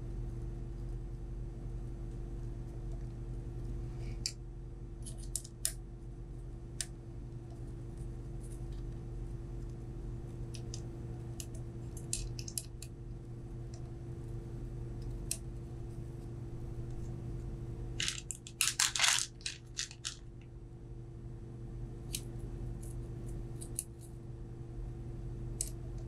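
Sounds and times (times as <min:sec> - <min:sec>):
steady low hum: 0:00.0 - 0:26.0
small plastic parts clicking: 0:11.4 - 0:12.8, 0:18.0 - 0:20.2.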